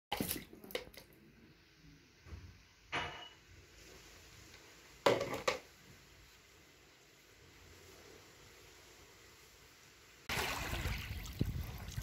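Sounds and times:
water splashing onto tiles: 0.1 - 1.1, 10.3 - 12.0.

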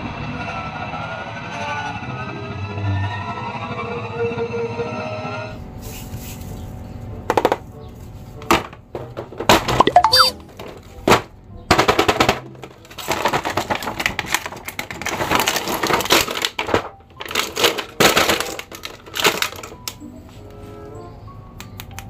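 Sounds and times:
quiet background music: 3.9 - 22.0
plastic packaging crinkling: 12.8 - 19.8.

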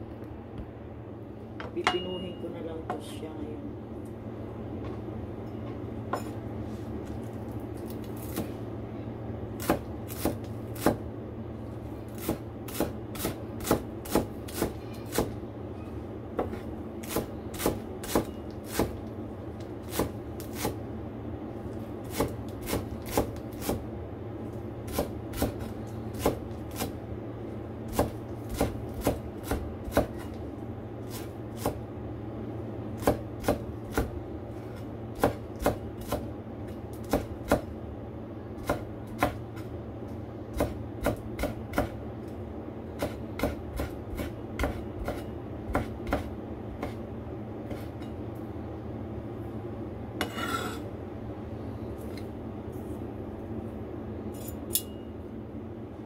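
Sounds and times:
knife chopping on cutting board: 9.6 - 11.0, 12.2 - 15.4, 16.4 - 19.0, 22.0 - 23.8, 24.9 - 26.9, 27.9 - 30.4, 33.0 - 34.1, 35.2 - 36.3, 37.0 - 37.7, 38.6 - 39.7, 40.5 - 42.0, 43.0 - 47.0.

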